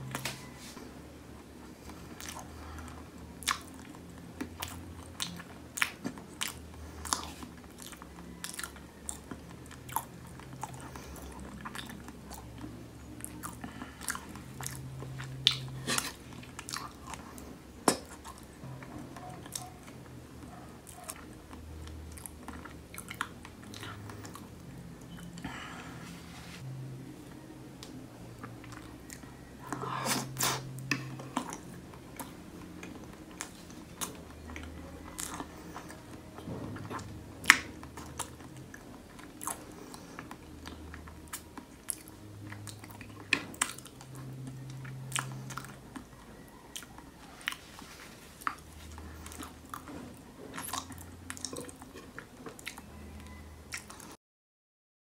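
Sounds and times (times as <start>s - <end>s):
close-miked chewing: 0.0s - 54.2s.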